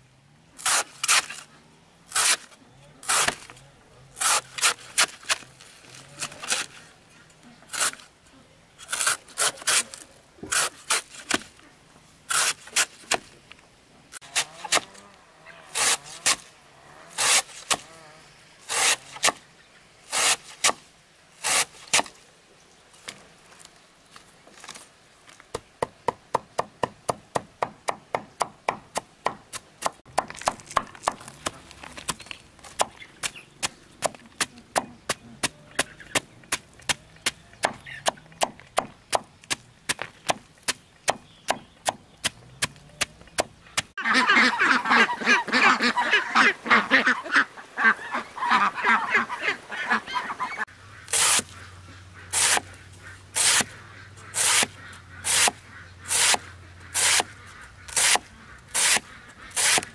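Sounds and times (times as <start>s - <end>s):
machete chopping banana stem: 2.1s - 3.5s, 53.4s - 53.7s, 57.0s - 57.3s, 57.9s - 59.9s
poultry honking: 44.0s - 59.6s.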